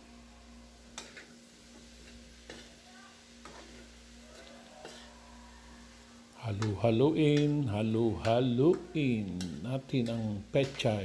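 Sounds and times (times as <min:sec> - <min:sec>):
greens sizzling in a pan: 0:00.0 - 0:11.0
utensil clicking against pan: 0:06.6 - 0:10.9.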